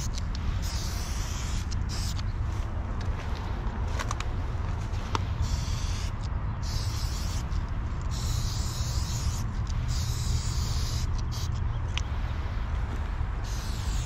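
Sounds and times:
spray paint can hissing: 0:00.0 - 0:02.2, 0:05.3 - 0:11.6, 0:13.4 - 0:14.0
steady low rumble: 0:00.0 - 0:14.0.

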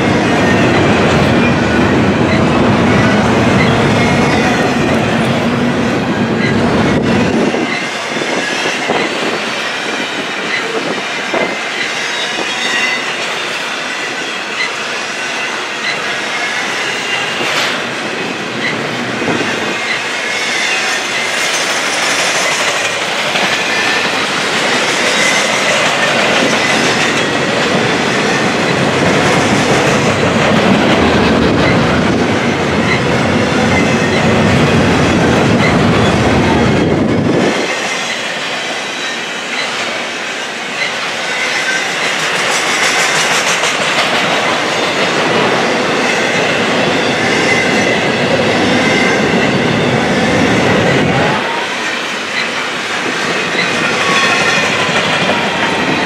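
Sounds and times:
train wheels clattering on rails: 0:00.0 - 0:56.0
high wheel squeal: 0:02.3 - 0:04.6, 0:07.2 - 0:17.9, 0:18.5 - 0:28.9, 0:46.0 - 0:56.0.

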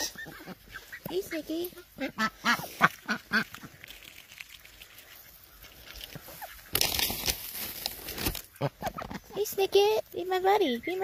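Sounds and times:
duck calls: 0:00.0 - 0:03.6
ducks feeding: 0:00.0 - 0:11.0.

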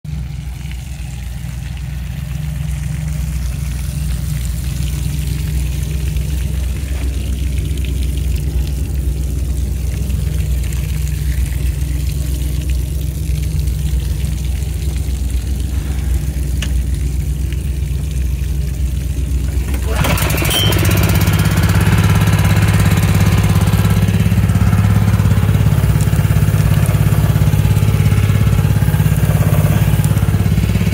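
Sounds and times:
water spraying from nozzles: 0:00.0 - 0:30.9
steady low hum: 0:00.1 - 0:19.8.

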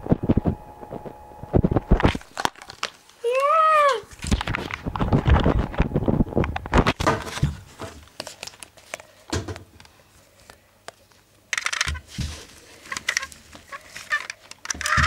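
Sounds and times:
crinkly rustling: 0:00.0 - 0:03.5, 0:04.1 - 0:09.3, 0:12.0 - 0:15.0
plastic toys clicking and knocking: 0:12.9 - 0:15.0.

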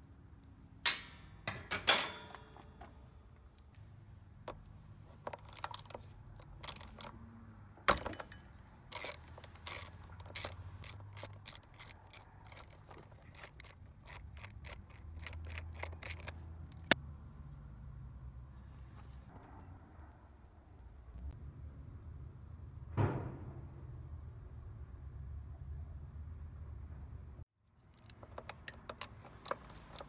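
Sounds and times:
socket ratchet clicking: 0:05.3 - 0:07.1, 0:08.9 - 0:17.0, 0:27.9 - 0:30.0.

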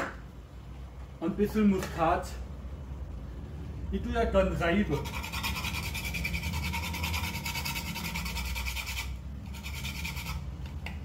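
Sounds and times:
nutmeg rasping on grater: 0:05.0 - 0:10.6.

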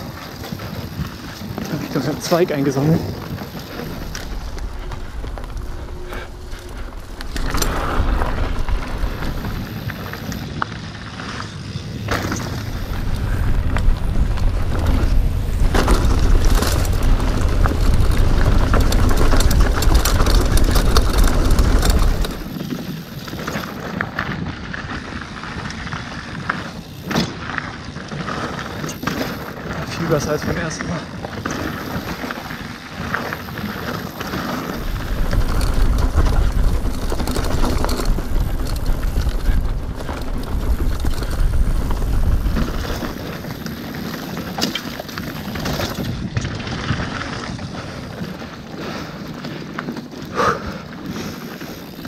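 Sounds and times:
wind buffeting microphone: 0:00.0 - 0:27.0, 0:28.0 - 0:52.0
bike chain and frame rattling: 0:00.0 - 0:52.0
bike tyres on dirt: 0:00.0 - 0:52.0.

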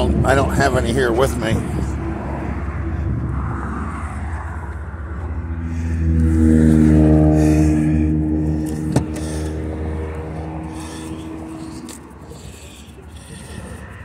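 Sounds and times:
passing vehicle engine drone: 0:00.0 - 0:14.0
low rumble: 0:01.6 - 0:12.3.

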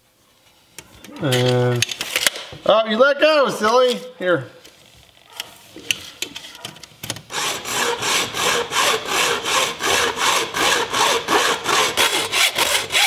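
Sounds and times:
hacksaw cutting metal pipe: 0:07.3 - 0:13.0.

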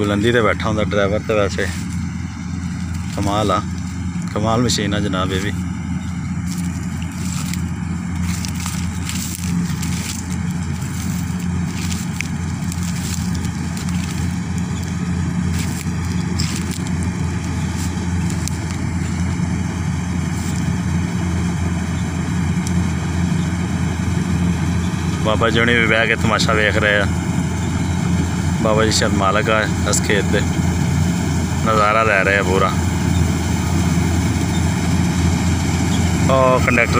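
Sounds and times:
combine harvester engine drone: 0:00.0 - 0:36.9
crackles of cutting wheat: 0:01.3 - 0:05.7, 0:06.3 - 0:20.8.

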